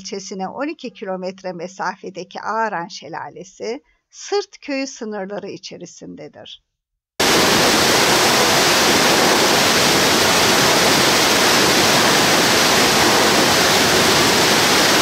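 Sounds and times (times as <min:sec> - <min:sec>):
waterfall rushing: 0:07.2 - 0:15.0.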